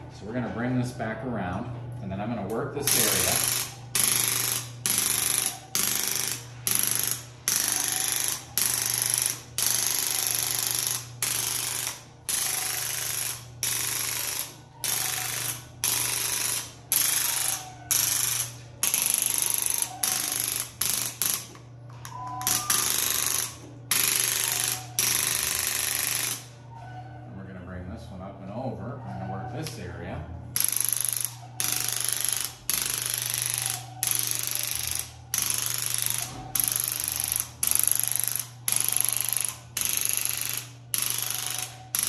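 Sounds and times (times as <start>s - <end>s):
handheld massage device buzzing: 2.8s - 26.5s, 30.6s - 42.0s.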